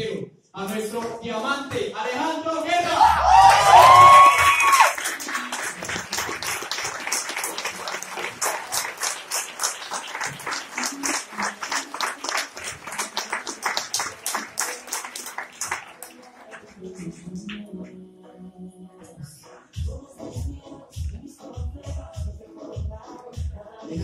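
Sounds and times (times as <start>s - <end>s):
audience rhythmic applause: 3.0s - 17.7s.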